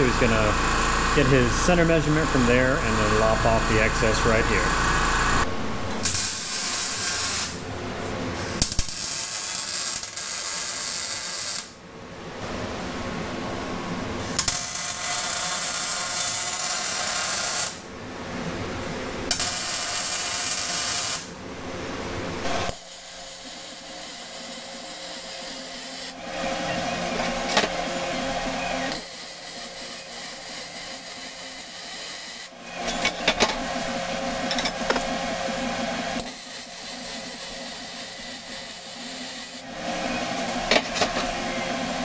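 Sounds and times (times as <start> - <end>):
power tool cutting: 0.0 - 7.6
welding crackle: 5.2 - 7.6, 8.5 - 11.8, 14.3 - 17.8, 19.3 - 21.3.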